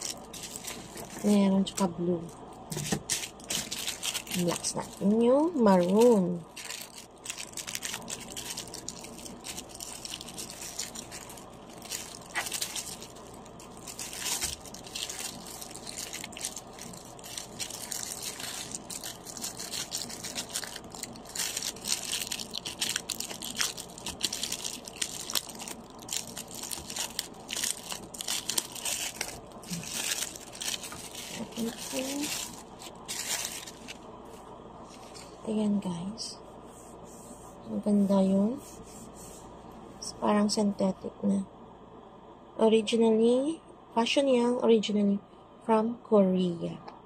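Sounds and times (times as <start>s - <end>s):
plastic packaging crinkling: 0.0s - 35.4s.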